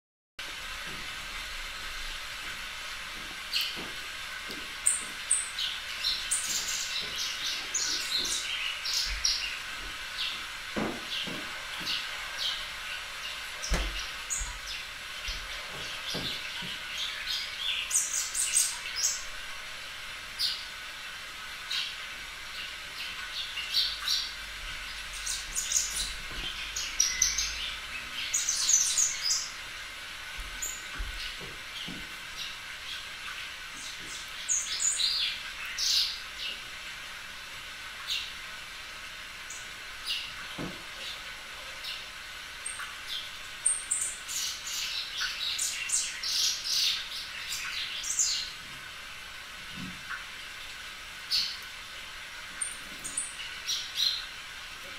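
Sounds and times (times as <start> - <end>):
small birds chirping: 3.5 - 19.4, 20.3 - 20.8, 21.6 - 29.6, 30.4 - 36.7, 38.0 - 38.4, 39.4 - 48.6, 50.6 - 51.7, 52.5 - 54.4.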